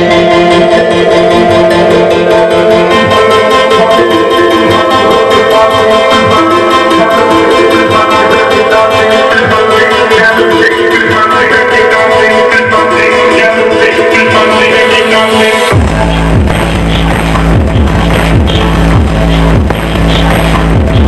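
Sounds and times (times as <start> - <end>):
music jingle over loud sound system: 0.0 - 21.0.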